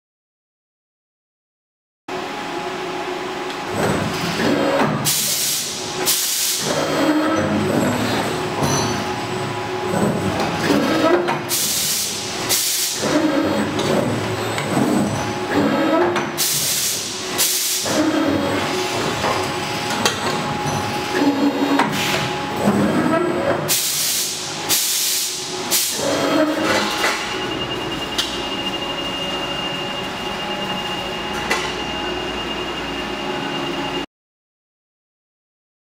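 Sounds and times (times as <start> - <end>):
motors whining: 12.1 - 23.6
short rising whine: 26.0 - 34.1.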